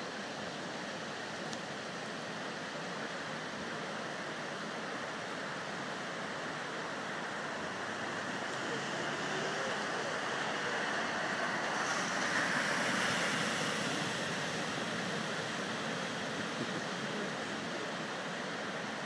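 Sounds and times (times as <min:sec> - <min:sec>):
floodwater rushing: 0:00.1 - 0:19.0.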